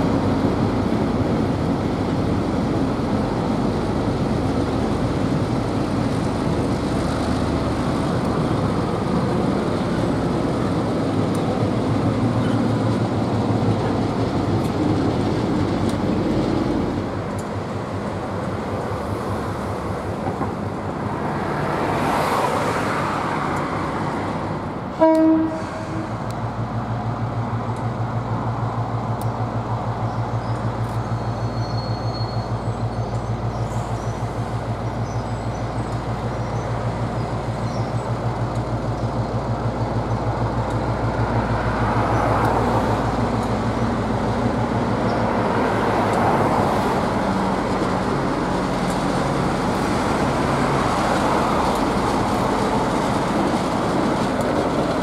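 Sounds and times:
train horn toot: 0:25.0 - 0:26.2.

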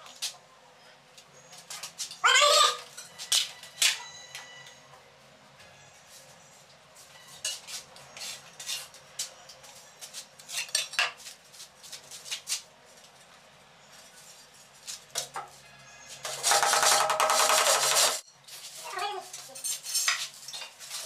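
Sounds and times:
metal tool scraping on tile: 0:07.1 - 0:09.4, 0:10.1 - 0:11.2, 0:15.2 - 0:18.3, 0:19.3 - 0:21.0.

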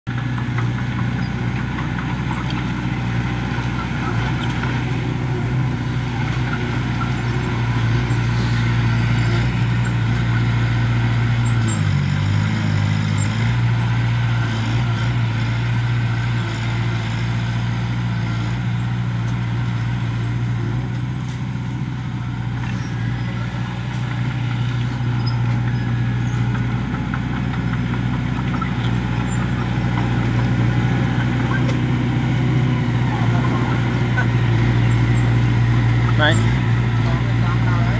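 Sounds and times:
bulldozer diesel engine under load: 0:00.1 - 0:37.9.

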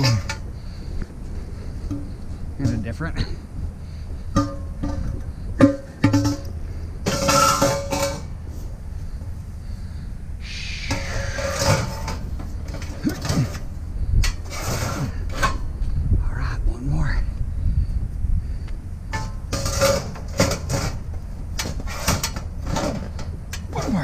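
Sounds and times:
steel posts knocking and clanking: 0:00.0 - 0:00.5, 0:01.8 - 0:03.4, 0:04.2 - 0:08.4, 0:10.9 - 0:15.7, 0:19.1 - 0:24.0
metal scraping and rubbing: 0:10.8 - 0:15.7, 0:19.2 - 0:24.0.

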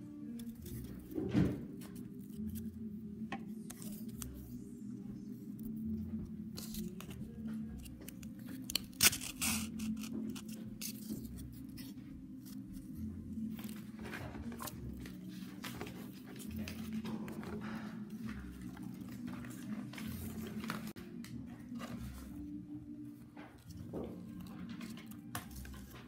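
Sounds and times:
quiet background music: 0:00.0 - 0:26.0.

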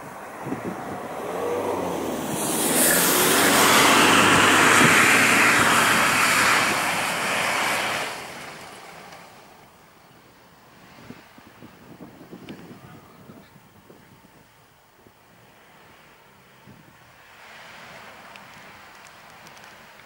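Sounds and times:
tyres churning through slush: 0:00.0 - 0:09.7
suv engine under load: 0:00.0 - 0:10.0.

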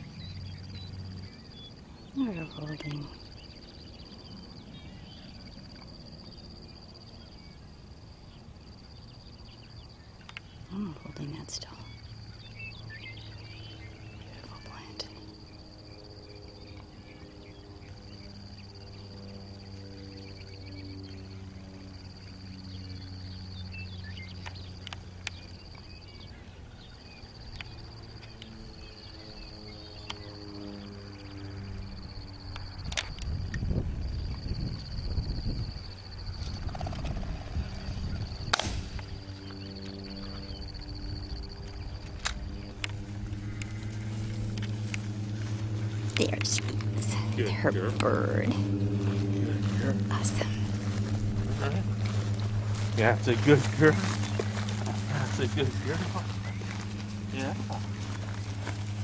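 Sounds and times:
bird chirps: 0:00.0 - 0:31.5
insect trill: 0:00.0 - 0:59.0
low hum: 0:00.0 - 0:59.0
wind rumble: 0:28.8 - 0:59.0.

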